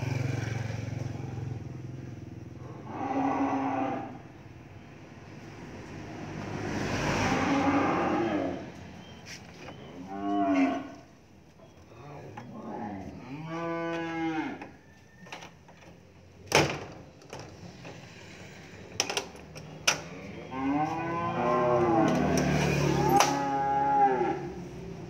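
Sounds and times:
cattle mooing: 2.6s - 4.3s, 7.1s - 8.8s, 10.0s - 11.0s, 12.1s - 14.9s, 20.1s - 24.7s.

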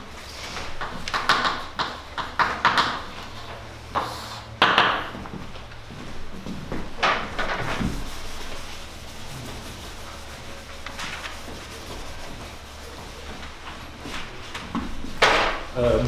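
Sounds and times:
low room hum: 0.0s - 16.0s
eraser rubbing on blackboard: 7.6s - 13.7s.

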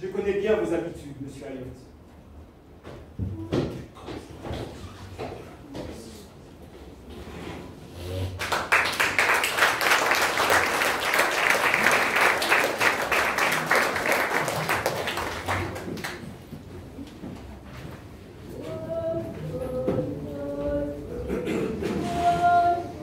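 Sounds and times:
audience applauding: 8.4s - 16.4s.

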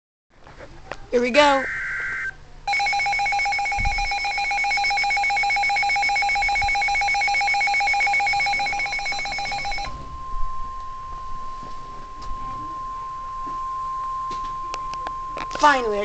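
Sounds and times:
warbling data burst: 1.4s - 13.3s
rapidly pulsing electronic alarm tone: 1.4s - 16.0s.

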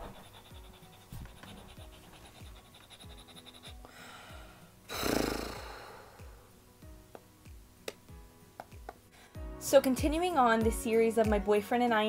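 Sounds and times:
woman sighing: 3.9s - 6.5s
music with kick-drum beat: 5.6s - 11.5s.

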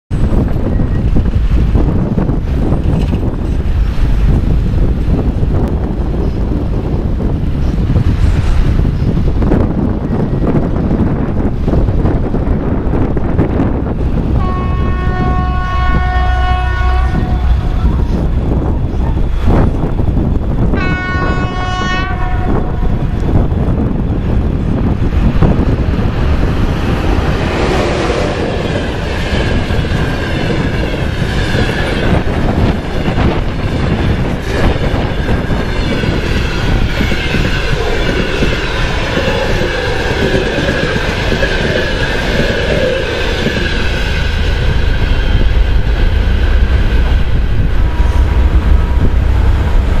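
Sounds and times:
train wheels clattering over rails: 0.1s - 10.8s, 23.2s - 50.0s
low rumble: 22.6s - 50.0s.

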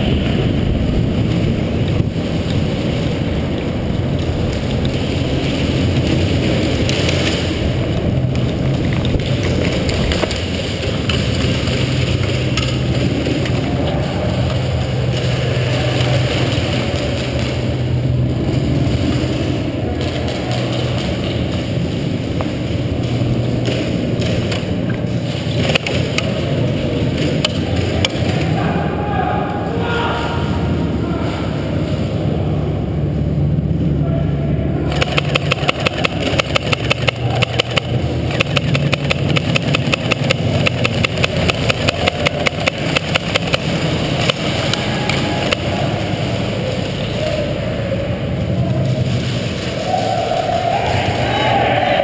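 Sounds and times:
sharp clicks: 34.9s - 45.8s.

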